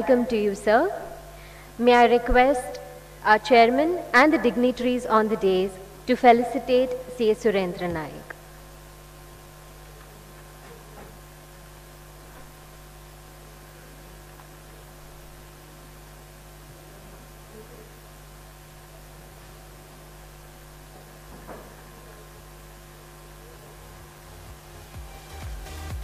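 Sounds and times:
electrical mains hum: 0.0s - 26.0s.

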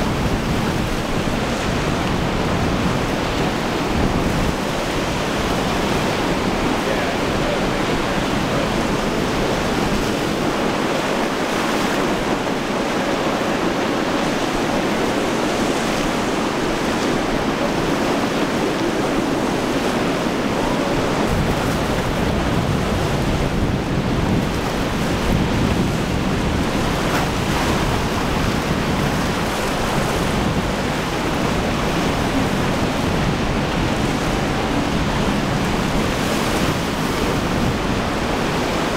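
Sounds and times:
surf breaking and washing: 0.0s - 38.9s
wind buffeting microphone: 0.0s - 38.9s.

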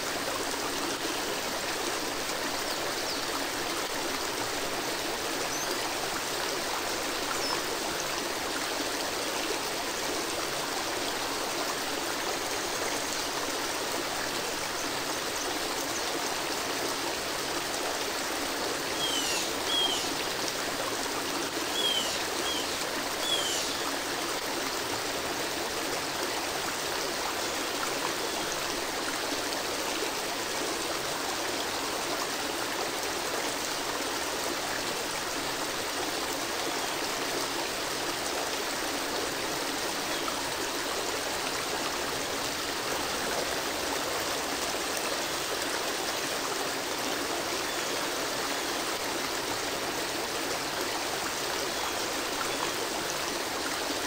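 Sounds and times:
waterfall rushing into a pool: 0.0s - 54.0s.

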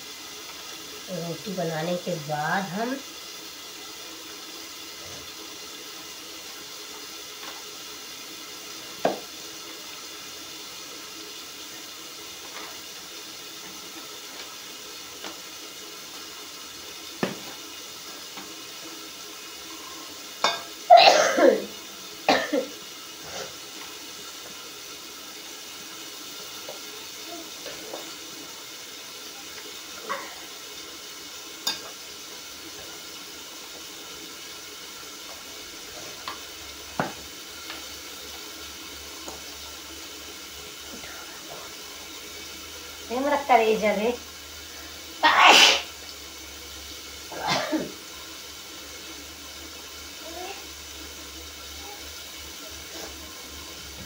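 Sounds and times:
steady hiss: 0.0s - 54.0s
person coughing: 20.9s - 21.7s, 22.3s - 22.7s, 45.2s - 45.9s, 47.3s - 48.0s.

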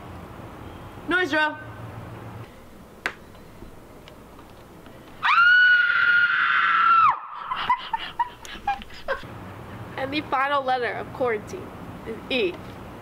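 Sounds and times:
woman screaming: 5.2s - 7.6s.

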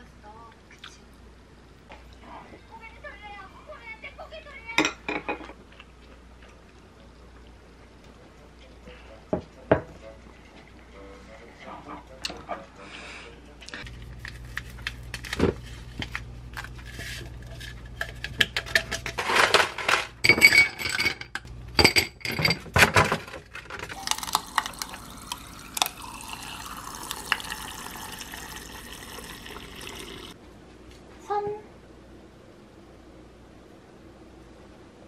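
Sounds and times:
ice cubes clinking into glass: 23.9s - 30.4s
water pouring into glass: 24.0s - 30.4s.

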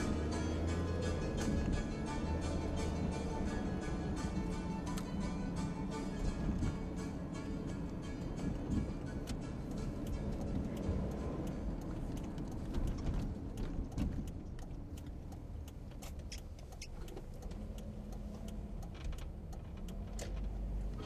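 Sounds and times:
car engine and tyre rumble: 0.0s - 21.0s
small clicks and rattles: 10.1s - 21.0s.

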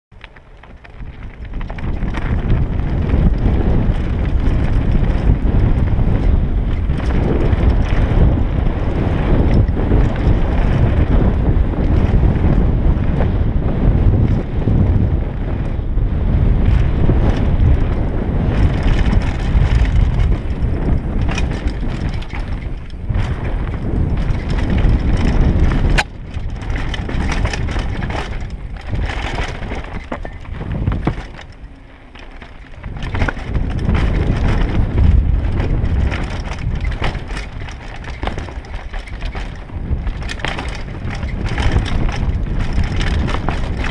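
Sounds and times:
wind buffeting microphone: 0.1s - 43.9s
tyres crunching over dirt and stones: 0.2s - 8.1s, 18.5s - 43.9s
small knocks and rattles: 17.3s - 43.9s.

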